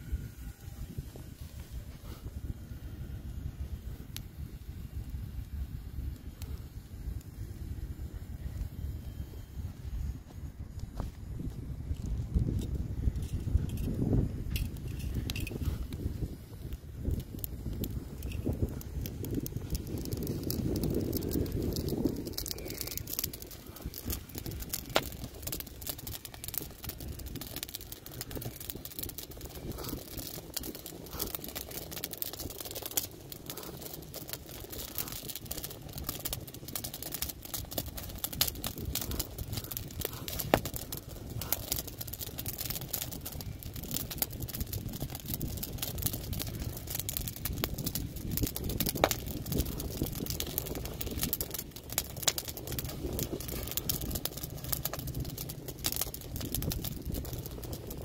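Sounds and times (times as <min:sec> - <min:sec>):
wood fire crackling: 0:00.0 - 0:58.0.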